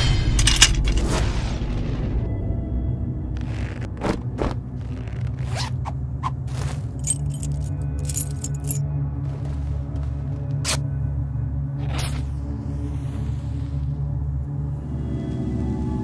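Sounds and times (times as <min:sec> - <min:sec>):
low steady drone: 0:00.0 - 0:06.2, 0:06.9 - 0:16.0
metal chains jangling: 0:00.3 - 0:00.8, 0:07.0 - 0:08.8
zips being pulled: 0:03.5 - 0:07.3.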